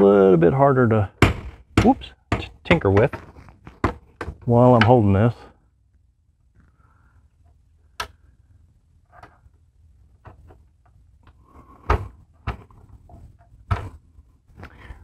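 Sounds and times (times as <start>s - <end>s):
sharp metal knocks: 1.2s - 5.0s.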